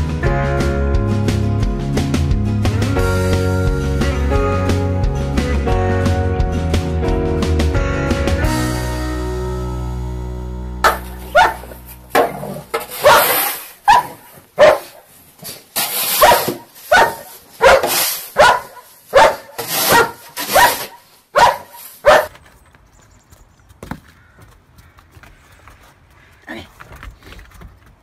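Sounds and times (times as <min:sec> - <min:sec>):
dog barking: 0:10.9 - 0:11.8, 0:13.0 - 0:15.0, 0:16.2 - 0:22.4.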